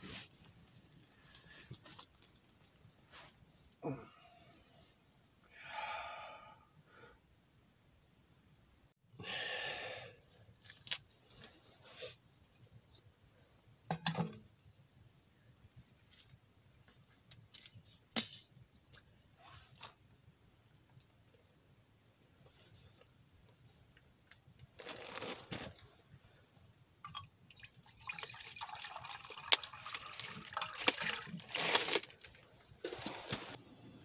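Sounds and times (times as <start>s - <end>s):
breathy sighs: 3.8s - 4.8s, 5.5s - 7.2s, 9.2s - 10.3s
steel mug set on stove: 13.9s - 14.5s.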